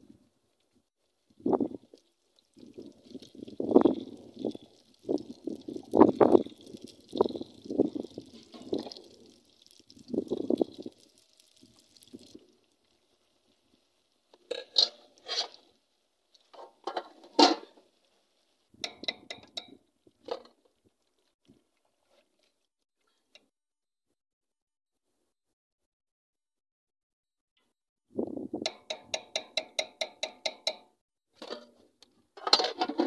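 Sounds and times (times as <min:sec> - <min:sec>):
hot oil sizzling: 0:01.0 - 0:20.2
metal spoon scraping metal pot: 0:14.4 - 0:15.7, 0:32.4 - 0:33.0.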